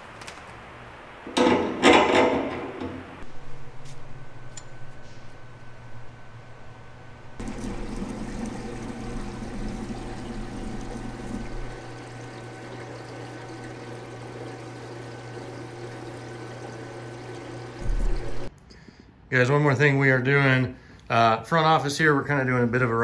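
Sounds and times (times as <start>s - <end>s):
water running through a hose: 7.4s - 18.5s
loud thump: 17.8s - 18.4s.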